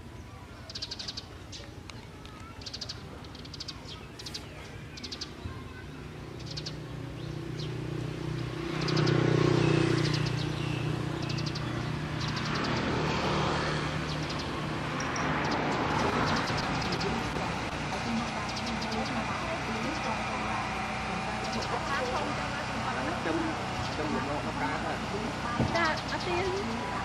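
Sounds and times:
small birds chirping: 0.0s - 27.0s
vehicle engine hum: 0.0s - 27.0s.

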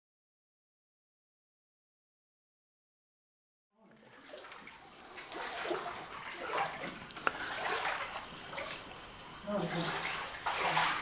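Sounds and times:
water splashing and sloshing: 3.8s - 11.0s.

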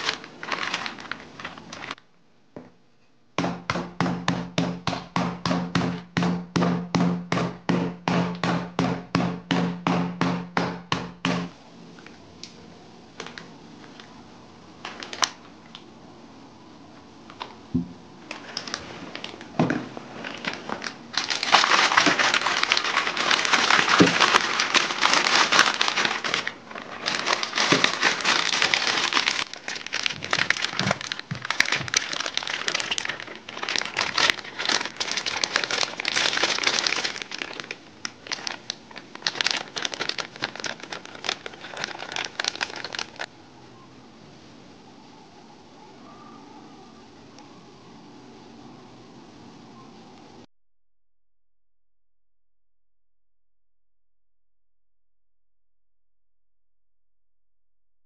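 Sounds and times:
plastic bag crinkling: 0.0s - 2.0s, 14.8s - 15.5s, 18.3s - 43.3s.

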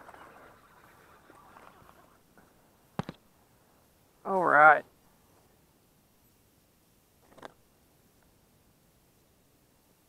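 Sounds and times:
faint background noise: 0.0s - 10.0s
soft rustles: 5.0s - 5.7s.

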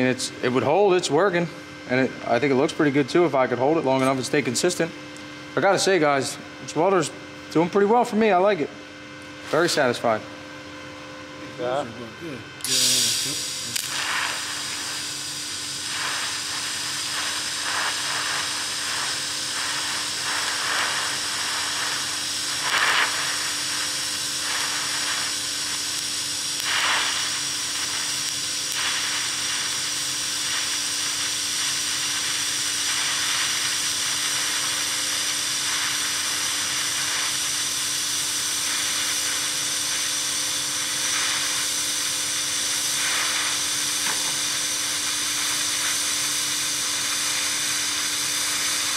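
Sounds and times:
welding arc hissing: 0.0s - 1.3s, 12.6s - 48.9s
welder humming: 0.0s - 48.9s.

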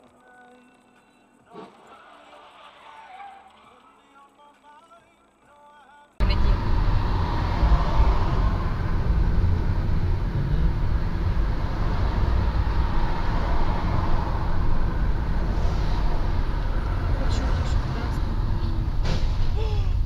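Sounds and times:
car road and engine rumble: 6.2s - 20.0s.

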